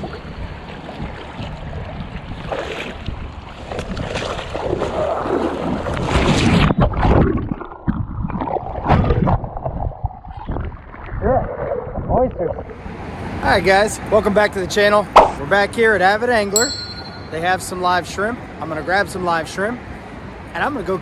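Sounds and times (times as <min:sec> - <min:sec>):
splashing in shallow water: 0:00.0 - 0:12.8
wind on microphone: 0:00.0 - 0:12.8.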